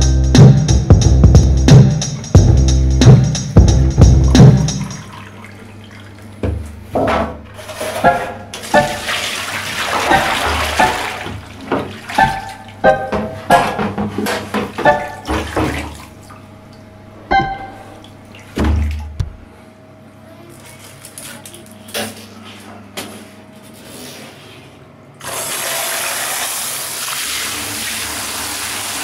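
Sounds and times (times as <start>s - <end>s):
water splashing in bathtub: 4.3s - 16.9s, 17.6s - 19.5s
running water: 4.7s - 6.7s, 7.5s - 19.4s
ringing knocks against tub: 8.0s - 9.2s, 10.0s - 15.9s, 17.3s - 18.0s.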